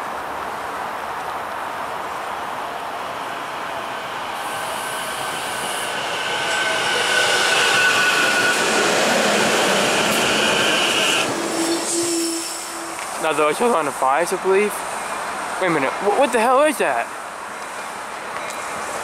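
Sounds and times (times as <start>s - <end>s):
electric train passing: 1.6s - 15.6s
steady high whine: 3.1s - 11.4s.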